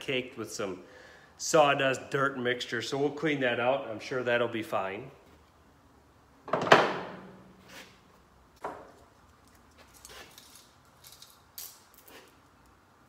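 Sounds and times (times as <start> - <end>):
chain links rattling: 9.9 - 12.3.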